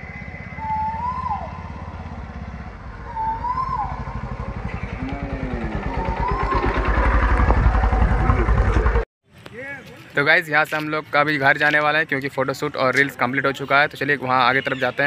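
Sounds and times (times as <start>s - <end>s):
motorcycle engine passing: 0.0s - 9.1s.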